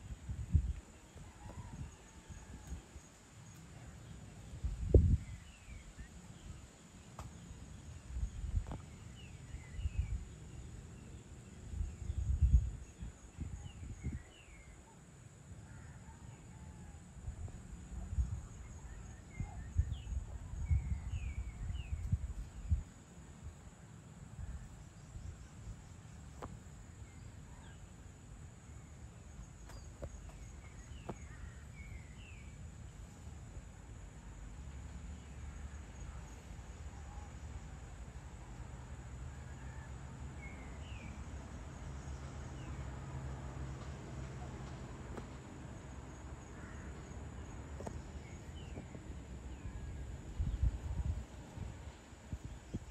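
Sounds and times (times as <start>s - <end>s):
wind buffeting microphone: 0.0s - 2.9s, 4.5s - 6.6s, 11.6s - 14.4s, 17.3s - 23.0s, 48.6s - 52.9s
high insect hum: 0.0s - 52.9s.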